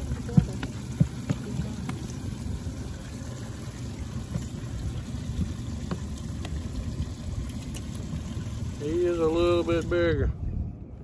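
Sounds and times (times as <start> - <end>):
water around a boat: 0.0 - 11.0
wind on microphone: 10.0 - 11.0.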